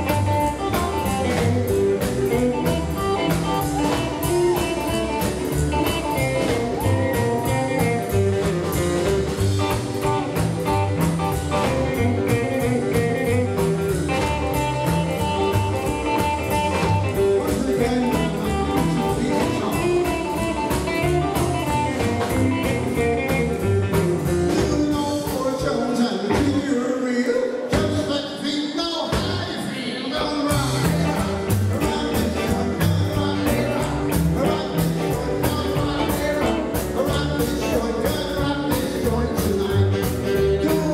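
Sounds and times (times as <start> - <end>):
live rockabilly band playing: 0.0 - 40.9
person singing: 0.0 - 40.9.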